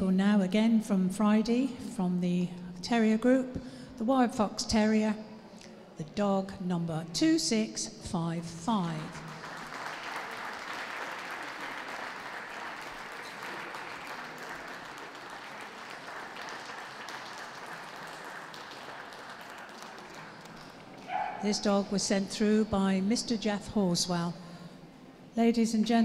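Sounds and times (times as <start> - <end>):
audience applauding: 9.3 - 21.5.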